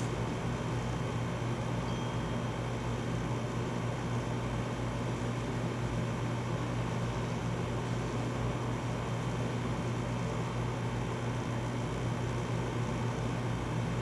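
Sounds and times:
air conditioner humming: 0.0 - 14.0.

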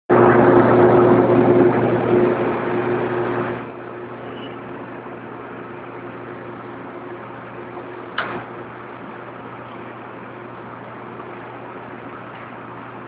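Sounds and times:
constant low hum: 0.1 - 13.0
higher steady machine tone: 0.1 - 13.0
loud machine noise: 0.1 - 13.0.

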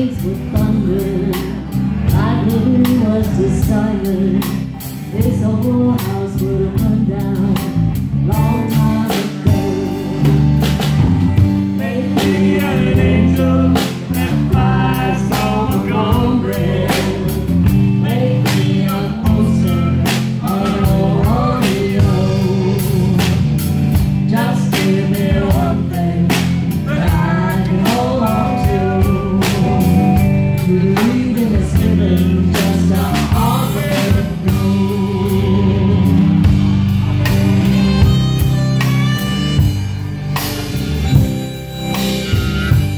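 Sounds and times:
woman singing: 0.0 - 10.0, 18.0 - 23.5, 24.2 - 29.9
drum kit beat: 0.0 - 42.9
electric bass: 0.0 - 42.9
electric guitar: 0.0 - 42.9.

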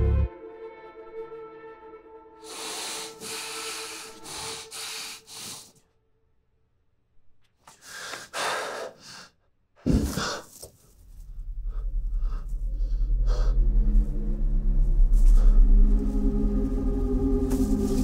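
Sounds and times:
man breathing heavily: 2.4 - 5.8, 7.7 - 10.7, 11.5 - 14.4
deep rumble: 10.9 - 18.0.

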